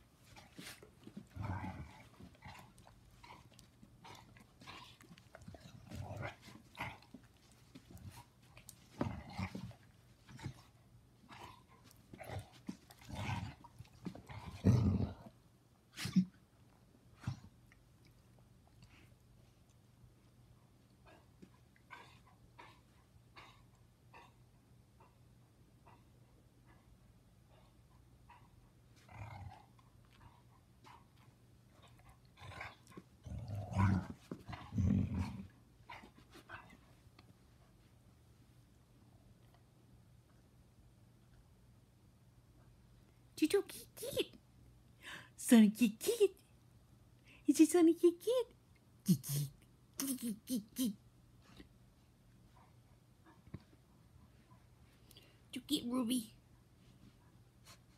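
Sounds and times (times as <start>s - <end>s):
dogs play-growling: 0.2s - 15.4s, 28.3s - 37.3s.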